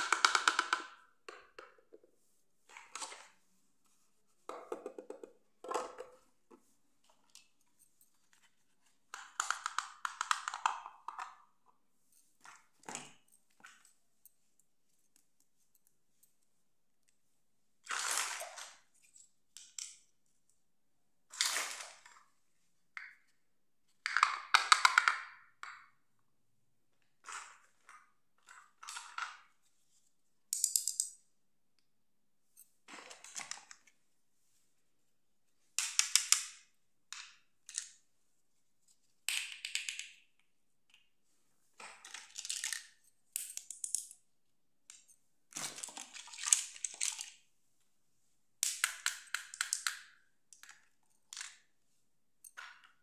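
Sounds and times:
plastic pieces clicking on tile: 0.0s - 1.8s, 9.2s - 11.3s, 30.5s - 31.2s, 39.3s - 40.2s, 42.6s - 44.2s, 48.6s - 50.7s.

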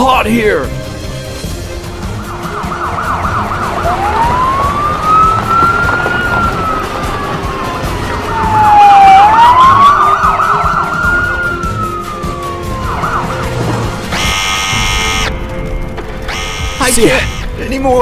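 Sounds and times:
wailing siren: 1.6s - 15.4s, 16.3s - 17.5s
yelping siren: 2.0s - 15.3s, 16.3s - 17.5s
steady buzzing tone: 14.0s - 17.6s.

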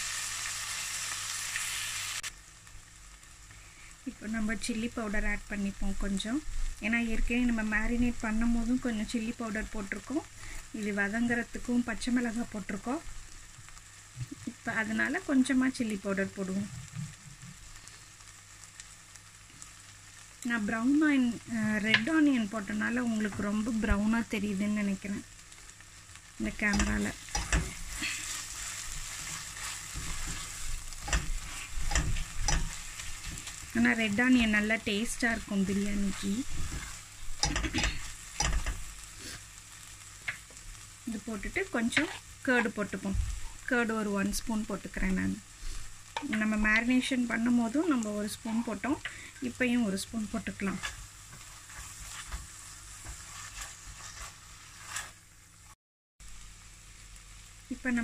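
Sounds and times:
masala sizzling in oil: 0.0s - 58.0s
spatula scraping a pan: 26.6s - 34.5s, 35.7s - 39.5s, 41.8s - 42.7s, 50.3s - 55.3s.

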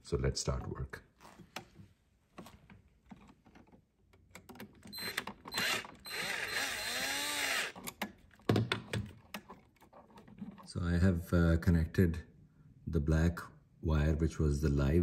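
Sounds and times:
cordless drill driving a screw: 4.9s - 8.0s.

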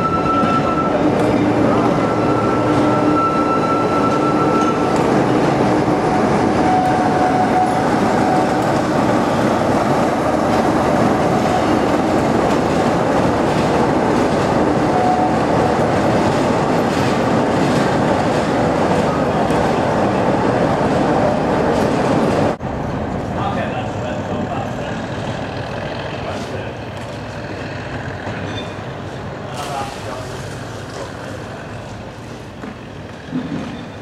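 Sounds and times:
wheel squeal whine: 0.0s - 9.6s, 14.8s - 15.8s, 28.2s - 28.9s
train running on rails: 0.0s - 34.0s.

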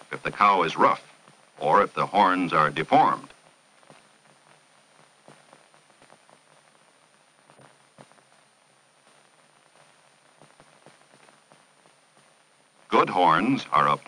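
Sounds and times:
faint film hiss with crackles: 0.0s - 14.0s.

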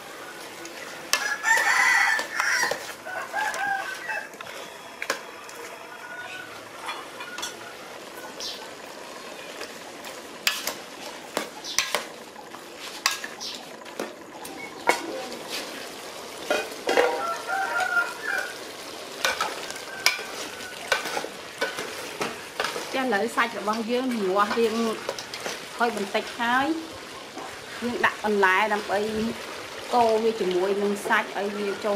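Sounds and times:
chicken sizzling in a pot: 0.0s - 31.9s
metal ladle scraping a pot: 1.1s - 5.7s, 19.2s - 23.0s.

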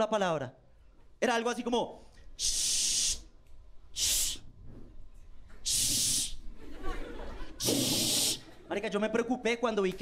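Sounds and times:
man hissing into a microphone: 2.4s - 3.3s, 3.9s - 4.5s, 5.6s - 6.4s, 7.6s - 8.5s.

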